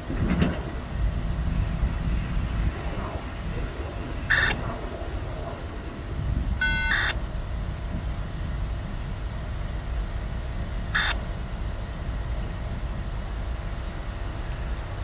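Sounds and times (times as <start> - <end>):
distant rail yard rumble: 0.0 - 15.0
brief beeping tone: 6.6 - 7.2.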